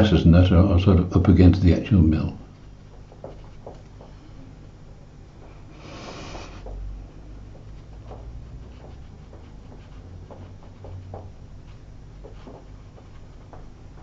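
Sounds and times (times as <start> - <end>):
steady low hum: 0.0 - 14.0
short hiss: 5.8 - 6.6
watercolour brush on paper: 7.6 - 13.7.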